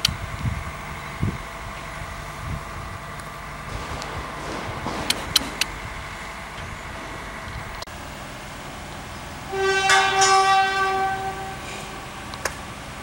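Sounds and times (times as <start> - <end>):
steady background noise: 0.0 - 13.0
horn blast: 9.4 - 13.0.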